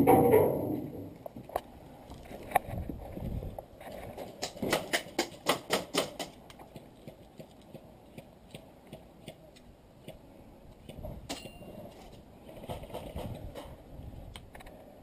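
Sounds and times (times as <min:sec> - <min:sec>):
loud sharp clicks: 0:04.4 - 0:06.5.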